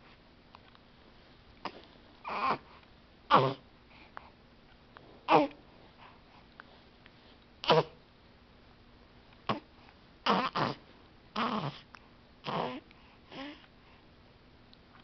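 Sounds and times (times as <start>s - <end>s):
newborn baby vocal noises: 1.6s - 4.1s, 5.2s - 6.2s, 7.6s - 8.0s, 9.4s - 13.7s.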